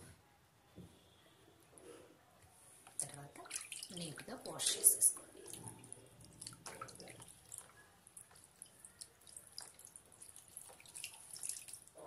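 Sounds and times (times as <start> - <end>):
hands splashing in water: 3.4 - 4.0, 8.4 - 11.9.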